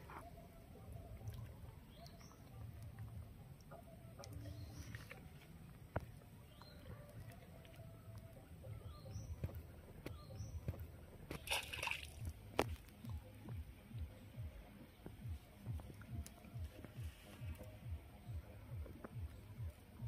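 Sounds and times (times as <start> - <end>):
bird chirps: 7.8 - 11.6
fish splashing at water surface: 11.3 - 12.4.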